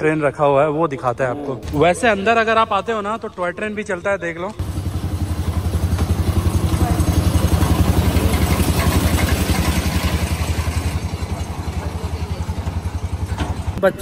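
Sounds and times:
toy train engine chugging: 0:04.6 - 0:14.0.

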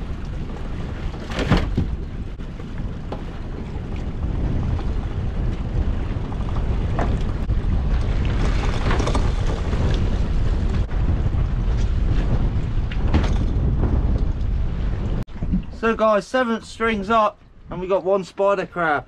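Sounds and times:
wind rumbling on microphone: 0:00.0 - 0:18.2
knocks and clattering: 0:11.8 - 0:15.7.

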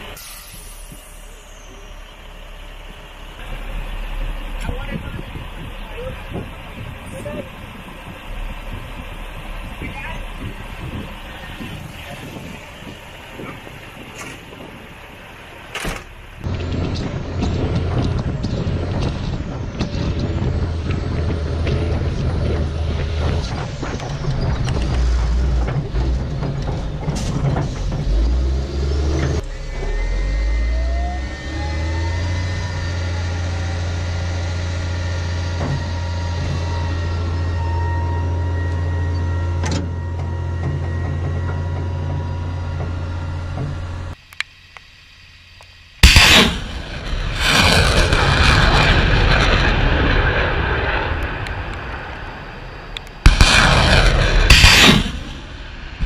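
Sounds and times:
diesel engine running: 0:00.0 - 0:56.0
rising mechanical whine: 0:00.0 - 0:56.0
rocket motor roaring: 0:00.0 - 0:56.0
rocket launch blast: 0:46.0 - 0:56.0.

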